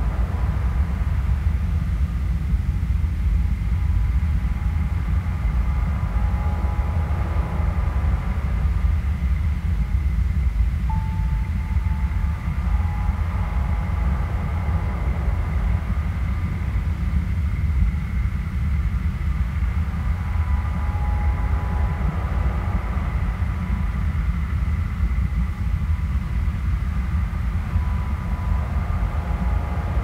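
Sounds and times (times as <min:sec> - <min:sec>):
low drone rumble: 0:00.0 - 0:30.0
faint drawn-out high tones: 0:04.1 - 0:09.6, 0:10.9 - 0:17.4, 0:19.6 - 0:25.2, 0:26.7 - 0:30.0
thin tone: 0:10.9 - 0:16.3.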